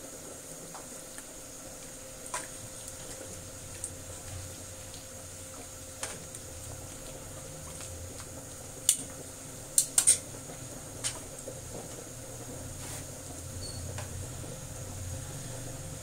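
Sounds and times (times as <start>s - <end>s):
metal tongs tapping a wok: 9.8s - 10.3s.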